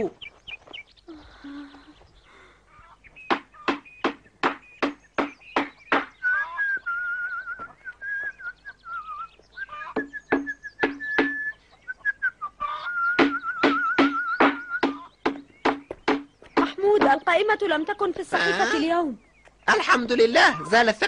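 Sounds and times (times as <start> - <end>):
man whistling a tune: 6.2 - 9.3, 10.0 - 15.0.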